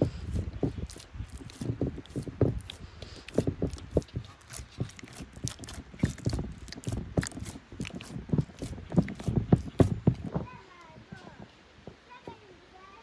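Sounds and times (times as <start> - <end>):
dull thuds: 0.0 - 12.0
irregular knocks and clicks: 4.8 - 10.6.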